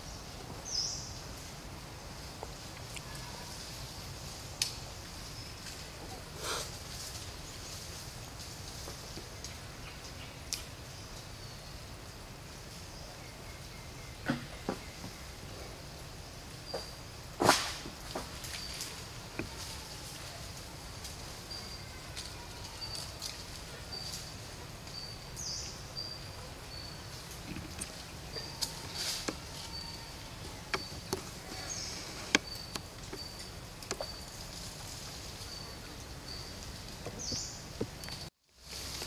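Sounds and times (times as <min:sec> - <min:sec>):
leaf litter and twigs snapping: 0:04.5 - 0:04.8, 0:10.5 - 0:10.7.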